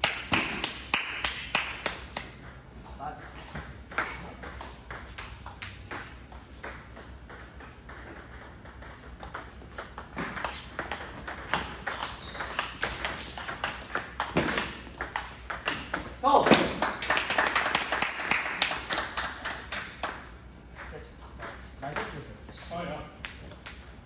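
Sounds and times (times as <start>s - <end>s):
ping pong ball clicking: 3.9s - 16.0s.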